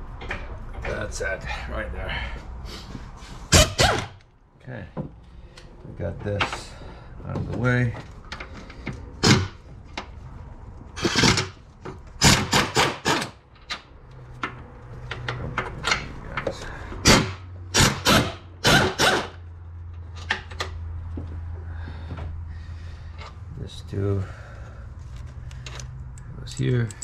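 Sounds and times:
scraping and clicking of parts: 0:05.0 - 0:17.1, 0:25.0 - 0:27.0.

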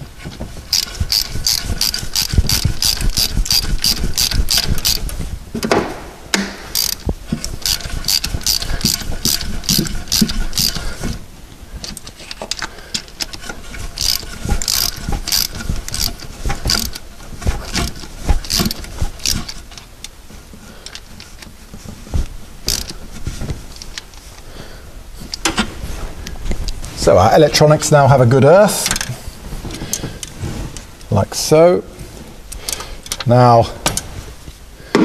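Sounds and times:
ratchet wrench clicking: 0:00.7 - 0:05.1, 0:06.7 - 0:10.8, 0:12.5 - 0:17.0, 0:17.8 - 0:19.6, 0:22.7 - 0:22.9.

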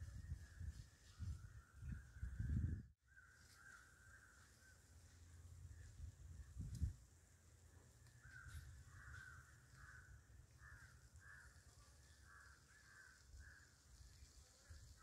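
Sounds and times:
crows cawing: 0:08.2 - 0:13.8.

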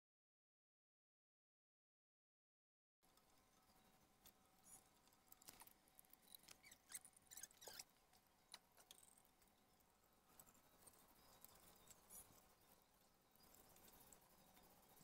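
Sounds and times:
plastic hose coupling clicks and squeaks: 0:06.3 - 0:07.9.

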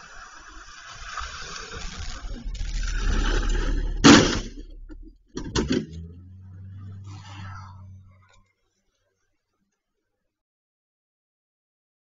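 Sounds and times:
car crash: 0:00.1 - 0:08.4
car engine revving: 0:01.0 - 0:08.4
steady low hum: 0:01.1 - 0:08.4.

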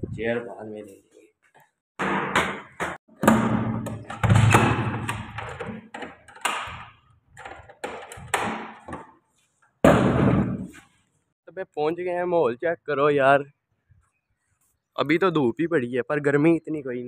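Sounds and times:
door knocks and clicks: 0:02.0 - 0:09.0.

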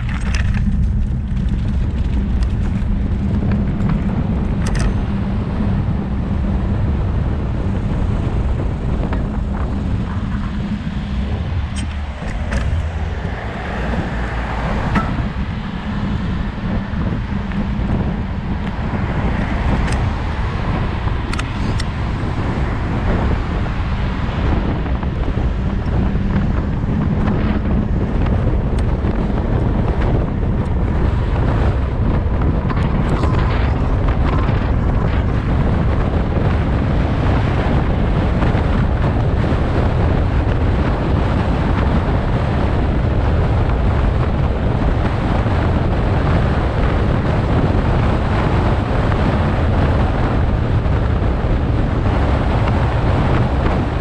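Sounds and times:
cars passing: 0:00.0 - 0:54.0
tyres rolling on asphalt: 0:00.0 - 0:54.0
wind rushing over microphone: 0:00.0 - 0:54.0.

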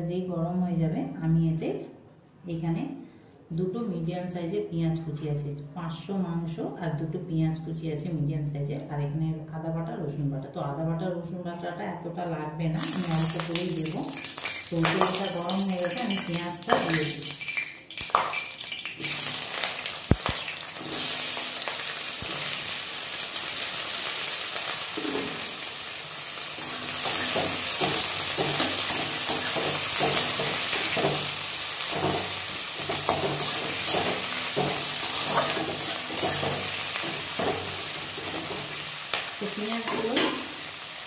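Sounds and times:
onions sizzling in oil: 0:12.8 - 0:41.0
spatula scraping a metal pan: 0:26.6 - 0:38.9.

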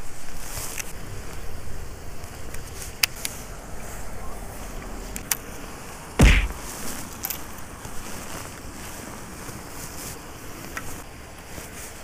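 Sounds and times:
heavy thump: 0:06.2 - 0:06.8.

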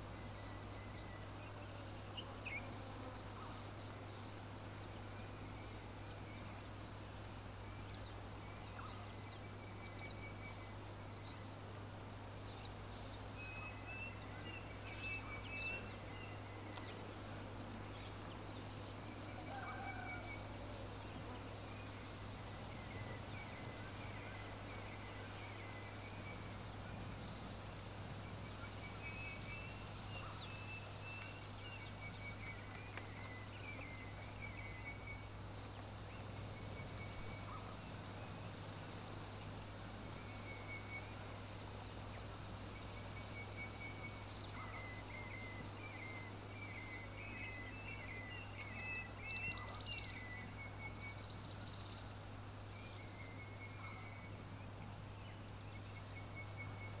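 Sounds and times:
partridge chirping calls: 0:36.2 - 0:37.9, 0:42.8 - 0:52.1, 0:53.1 - 0:54.8.

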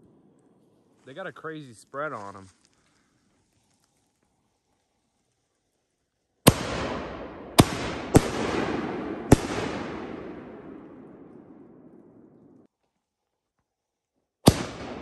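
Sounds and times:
firework crackling: 0:00.0 - 0:12.7
firework bang: 0:06.5 - 0:12.6.

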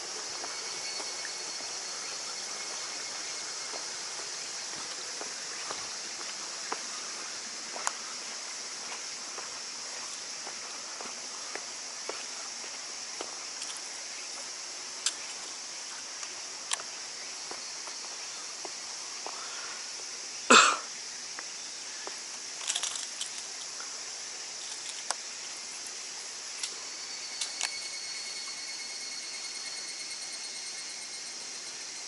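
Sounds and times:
outdoor background hiss: 0:00.0 - 0:32.0
footsteps on bare rock: 0:02.7 - 0:13.8.

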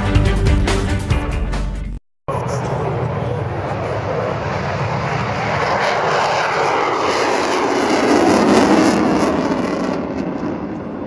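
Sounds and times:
jet roar passing by: 0:02.3 - 0:11.0.

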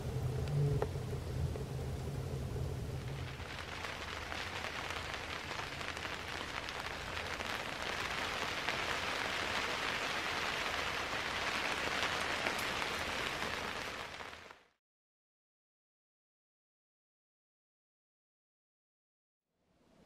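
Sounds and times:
snow pattering on tent canvas: 0:03.2 - 0:14.6.

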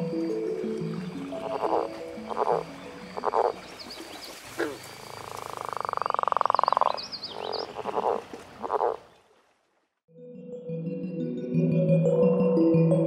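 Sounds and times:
frog croaking: 0:01.3 - 0:09.1.

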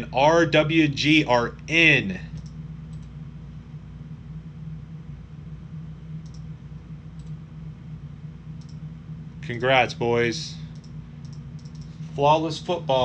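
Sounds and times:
steady low hum: 0:00.0 - 0:13.0
computer mouse clicking: 0:02.3 - 0:03.2, 0:06.2 - 0:06.5, 0:07.2 - 0:07.4, 0:08.6 - 0:08.8, 0:10.7 - 0:12.0.

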